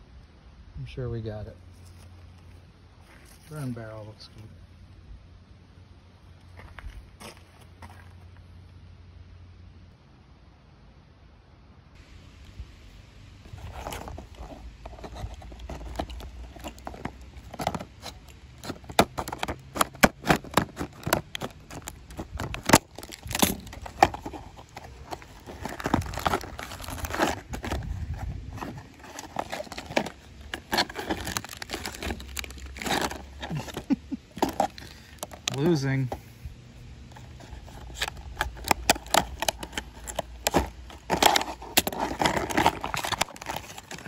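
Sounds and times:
plastic bag rustling: 13.4 - 36.1, 37.1 - 44.0
plastic packaging crinkling: 13.4 - 36.1, 37.1 - 44.0.

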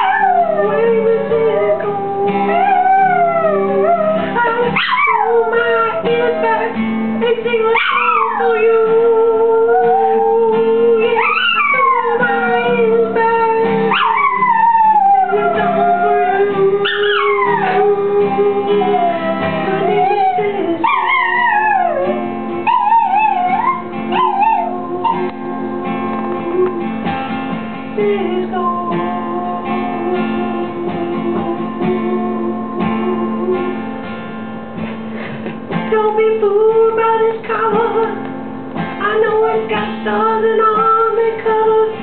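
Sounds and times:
dog howling: 0.0 - 6.7, 7.6 - 26.9
guitar music: 0.0 - 42.0.

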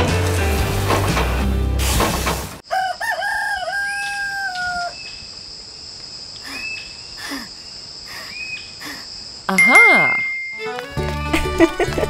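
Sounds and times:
background music: 0.0 - 2.0, 9.6 - 12.0
rooster crowing: 2.6 - 5.1.

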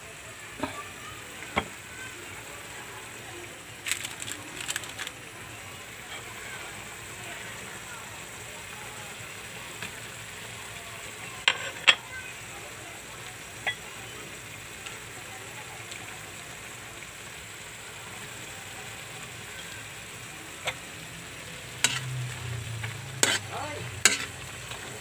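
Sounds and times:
food sizzling in a wok: 0.0 - 25.0
clinks against wok: 11.4 - 12.1, 13.6 - 13.9, 21.8 - 25.0.

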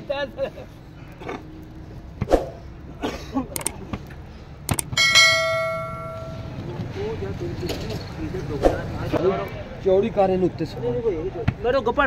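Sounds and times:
notification bell ding: 5.0 - 6.5.

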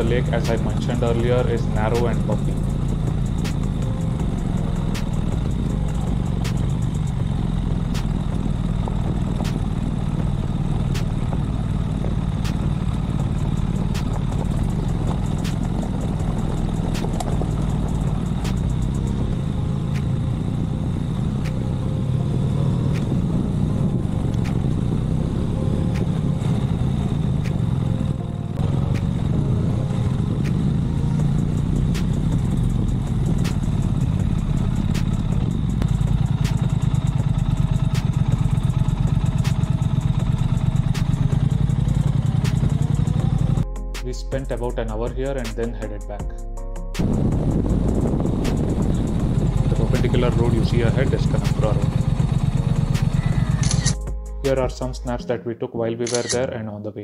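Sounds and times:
motorcycle engine running: 0.0 - 55.2
knocks and clatter on rough track: 1.8 - 20.2.

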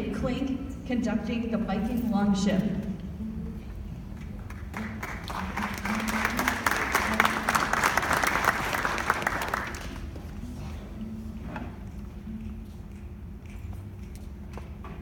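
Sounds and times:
audience applauding: 4.4 - 10.2.

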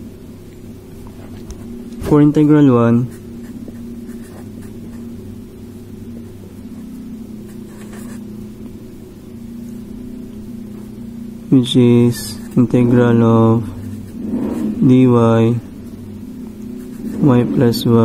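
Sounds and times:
low background hum: 0.0 - 18.0
faint writing strokes: 3.0 - 5.2, 6.2 - 8.3, 12.1 - 15.0, 16.6 - 18.0.

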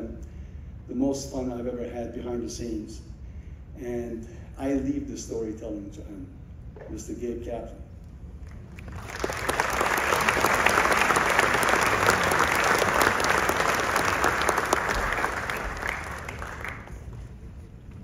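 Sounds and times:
audience applauding: 8.4 - 17.3.

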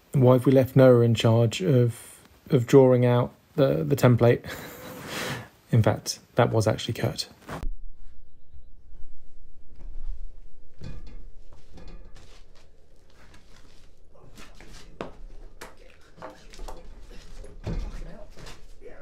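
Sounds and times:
timber beam knocking and creaking: 9.7 - 18.9.

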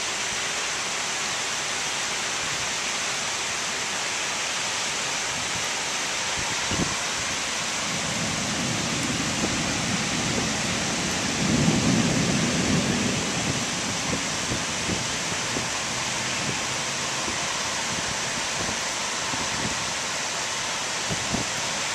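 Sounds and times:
heavy rain hissing: 0.0 - 21.9
low rumble of thunder: 7.8 - 15.8.

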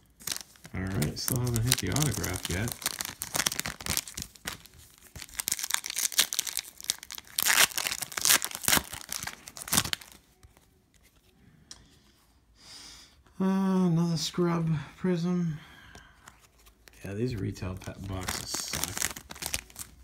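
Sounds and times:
foil wrapper tearing and crinkling: 0.1 - 10.2, 17.7 - 20.0.

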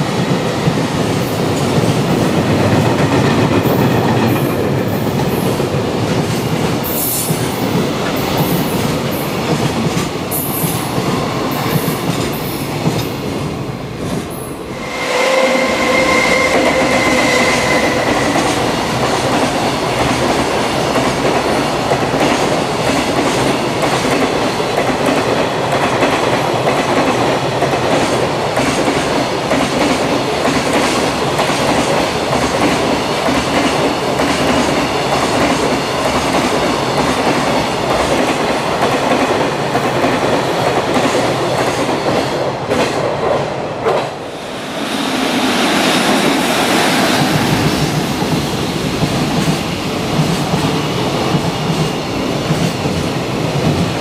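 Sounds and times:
train wheels rumbling: 0.0 - 54.0
steady tone: 14.6 - 19.0.

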